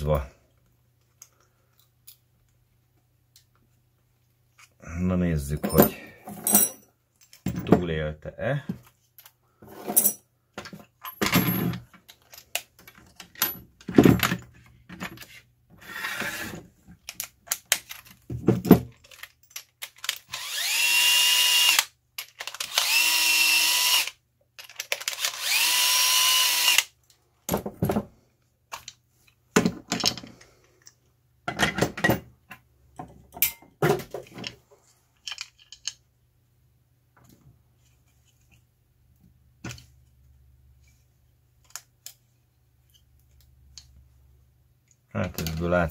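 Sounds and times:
metal parts clicking and knocking: 5.6s - 7.9s, 10.0s - 15.3s, 16.9s - 20.4s, 22.2s - 22.9s, 24.6s - 25.5s, 28.7s - 34.6s, 35.2s - 36.1s
power drill motor whine: 20.3s - 21.9s, 22.6s - 24.1s, 25.1s - 26.9s.

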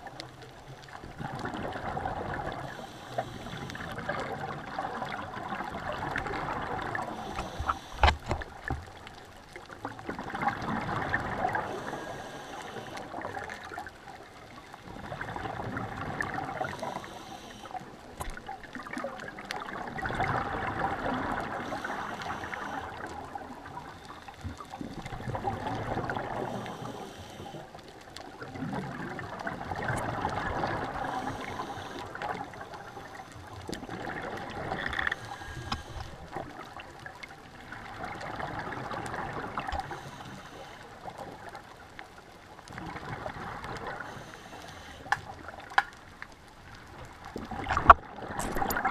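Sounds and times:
exhaled bubbles gurgling: 0.0s - 48.9s
regulator hiss: 7.1s - 8.1s, 11.6s - 13.1s, 16.7s - 17.9s, 21.6s - 23.1s, 26.4s - 27.7s, 31.1s - 33.3s, 39.8s - 40.9s, 44.0s - 45.1s.

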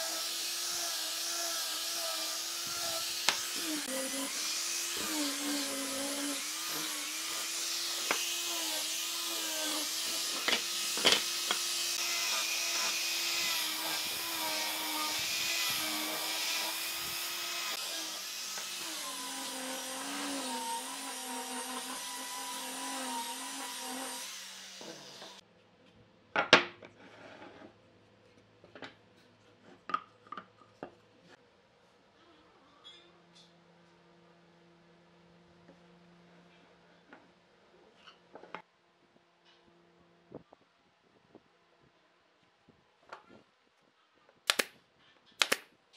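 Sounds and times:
angle grinder sanding wood: 0.0s - 25.4s.

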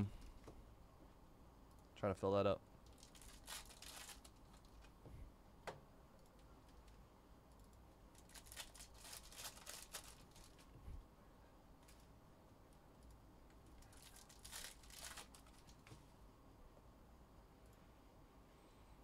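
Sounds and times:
plastic wrappers crinkling: 2.8s - 4.9s, 8.1s - 10.8s, 13.8s - 15.9s.

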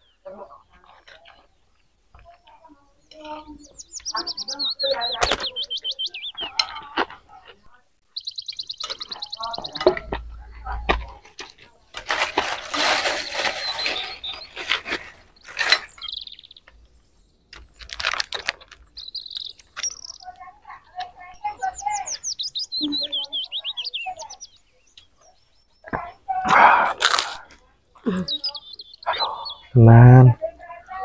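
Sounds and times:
bird chirping: 0.0s - 31.0s
plastic bag crinkling: 11.9s - 16.2s, 17.6s - 20.2s.

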